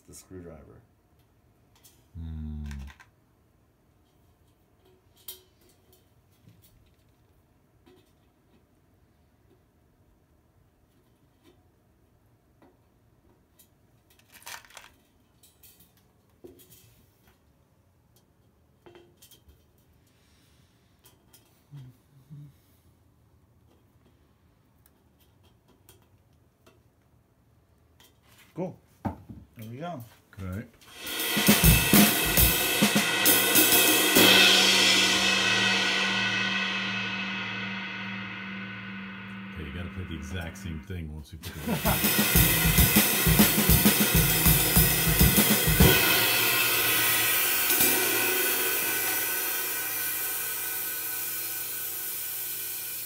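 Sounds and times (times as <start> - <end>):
ride cymbal struck with drumstick: 30.9 - 40.9, 41.5 - 53.0
low steady hum: 34.4 - 42.7.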